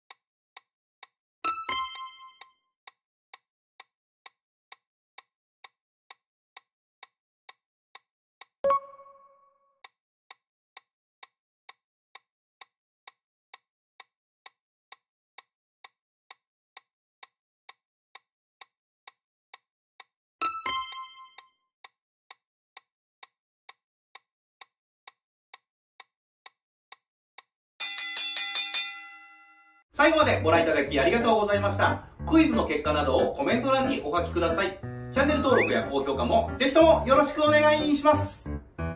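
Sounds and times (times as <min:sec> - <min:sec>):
countdown ticking clicks: 0:08.4 - 0:09.9, 0:20.4 - 0:21.5, 0:30.0 - 0:38.9.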